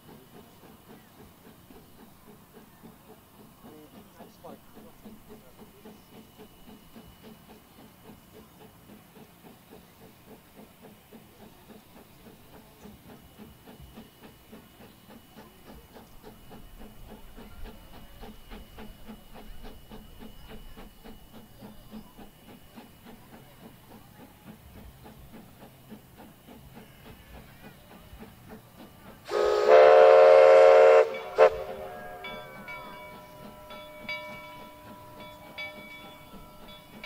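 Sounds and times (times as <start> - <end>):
steam locomotive exhaust beats: 0.0 - 37.0
steam whistle: 29.3 - 32.6.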